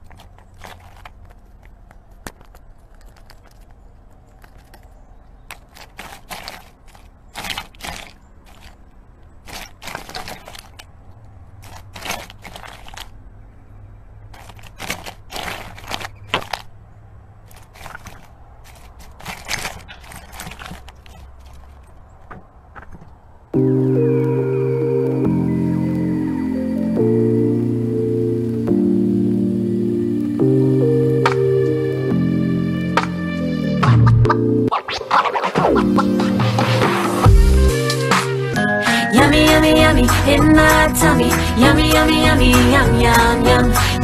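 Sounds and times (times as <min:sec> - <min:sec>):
chipmunk crunching food: 0:00.0 - 0:23.6.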